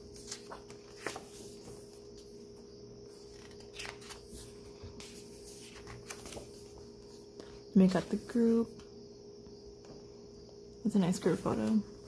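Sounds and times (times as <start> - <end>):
book pages rustling: 0.0 - 8.2
faint steady hum: 0.0 - 12.0.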